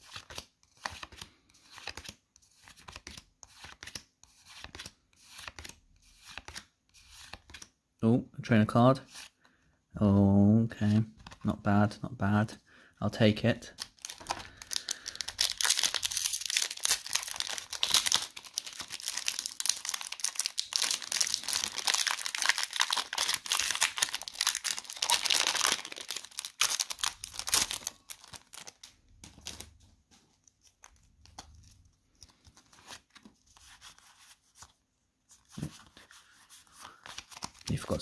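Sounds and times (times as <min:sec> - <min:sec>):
cards rustling and clicking: 0:00.0 - 0:07.8, 0:10.8 - 0:11.6, 0:13.7 - 0:38.0
wrappers tearing and crinkling: 0:13.9 - 0:28.9.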